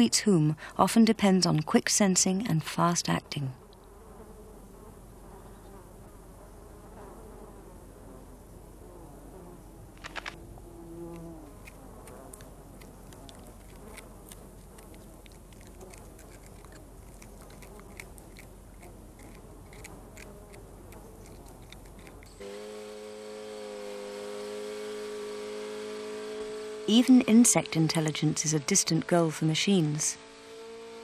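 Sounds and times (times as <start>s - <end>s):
fly buzzing: 3.3s - 31.0s
faint ticks: 11.1s - 22.4s
humming drone of held tones: 18.8s - 31.0s.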